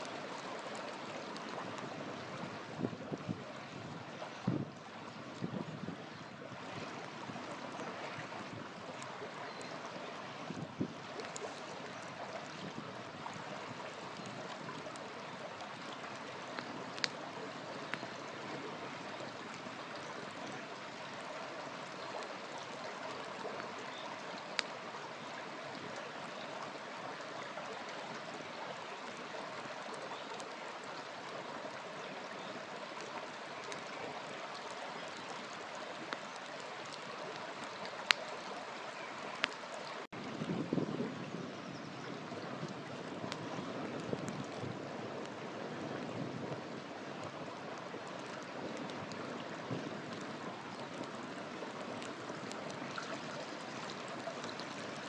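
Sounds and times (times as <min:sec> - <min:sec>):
campfire crackling: 0:00.0 - 0:40.8, 0:42.2 - 0:55.0
stream rushing: 0:00.0 - 0:55.0
fire popping: 0:06.9 - 0:20.4, 0:23.6 - 0:24.8, 0:42.7 - 0:45.4.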